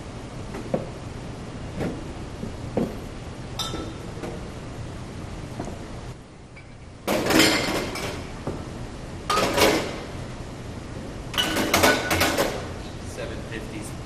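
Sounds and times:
glass bottles clinking: 3.6s - 4.1s, 7.1s - 8.2s, 11.3s - 12.4s.

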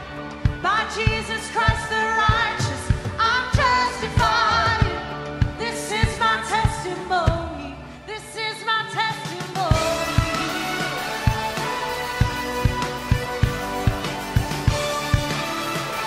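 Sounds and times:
keyboard: 0.0s - 16.0s
woman singing with vibrato: 0.6s - 11.4s
electric guitar: 9.5s - 16.0s.

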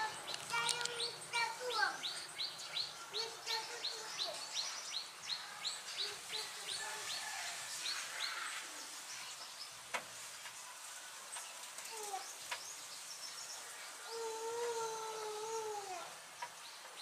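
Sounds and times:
bird chirping: 0.0s - 10.7s.

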